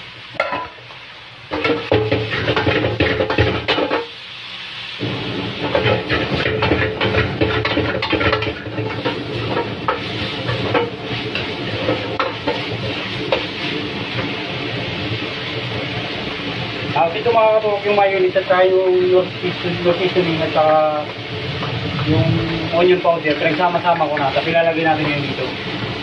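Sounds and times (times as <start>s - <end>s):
food sizzling: 0.0s - 26.0s
metal spatula scraping a wok: 5.6s - 14.2s.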